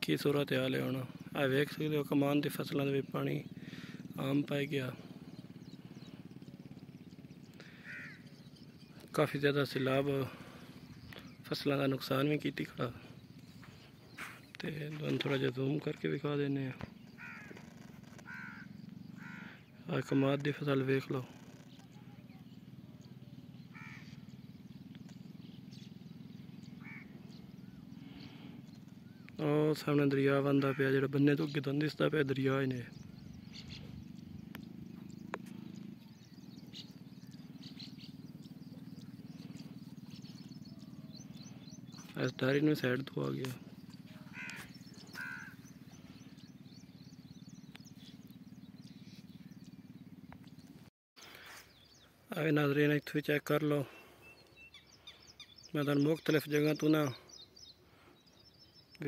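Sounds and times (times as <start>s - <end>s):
steady low hum: 0.0s - 20.2s, 21.0s - 31.6s, 32.2s - 52.3s
harsh bird calls: 0.0s - 59.0s
low pulsing drone: 0.8s - 16.1s, 21.2s - 29.4s, 32.2s - 50.9s
faint bird chirps: 0.8s - 16.2s, 16.8s - 52.6s, 53.4s - 59.0s
faint chirps: 32.1s - 52.5s.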